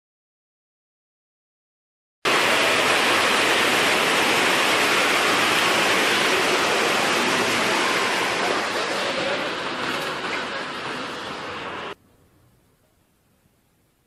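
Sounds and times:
water rushing: 2.3 - 12.0.

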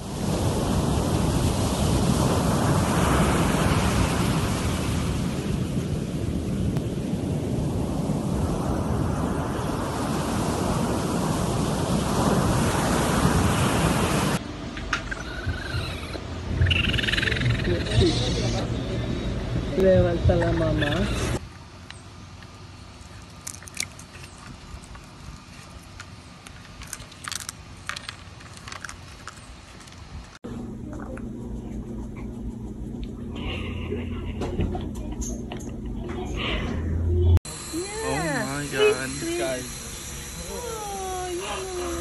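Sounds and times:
ocean surf breaking on beach: 0.0 - 14.4
animal crunching carrot: 24.8 - 30.0
steady low rumble: 30.3 - 42.0.

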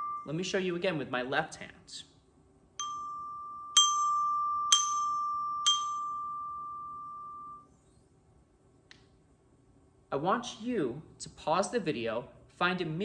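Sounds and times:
glockenspiel notes struck: 0.0 - 0.8, 2.8 - 7.7.

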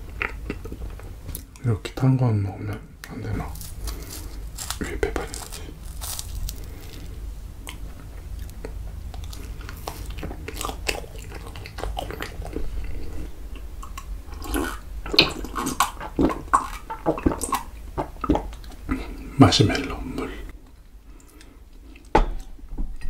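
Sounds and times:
chewing marshmallow: 0.0 - 1.7, 2.6 - 19.2
mouth clicks and smacks: 2.7 - 6.8.

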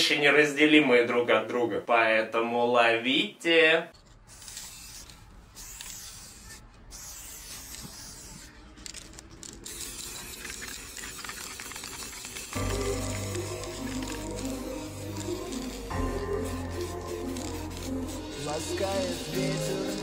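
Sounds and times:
spray paint can hissing: 4.3 - 20.0.

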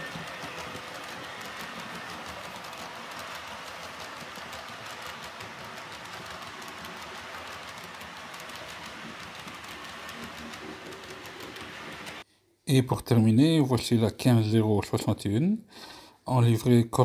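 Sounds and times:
model train rolling on track: 0.0 - 12.2
wheels clicking over rails: 0.0 - 12.2.

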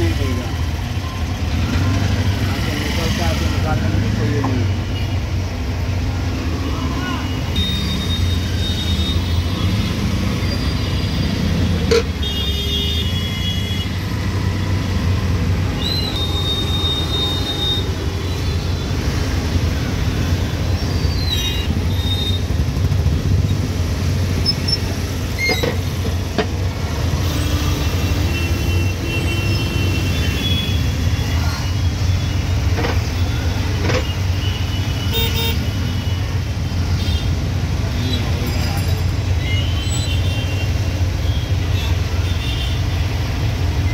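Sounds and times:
car horns tooting: 10.6 - 14.0.

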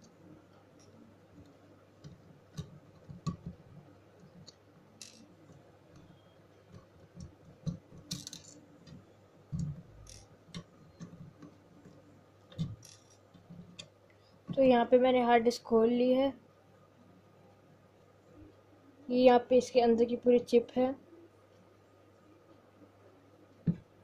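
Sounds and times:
small clicks and taps: 0.0 - 14.7.

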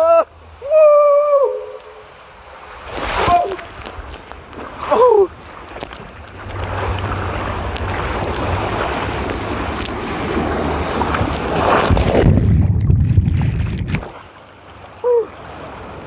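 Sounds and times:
water rushing down a water slide: 0.0 - 16.0
splash into a pool: 2.8 - 3.7, 11.1 - 14.4
muffled underwater rumble: 11.2 - 14.0.

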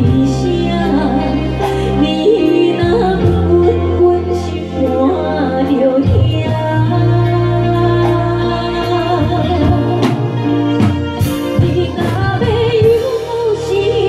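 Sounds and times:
live band playing: 0.0 - 14.0
woman singing a pop ballad: 0.0 - 14.0.

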